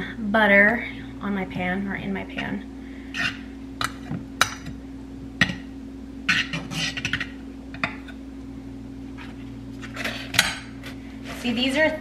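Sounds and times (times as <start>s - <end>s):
low hum: 0.0s - 12.0s
knife scraping frying pan: 6.3s - 7.3s, 9.8s - 11.7s.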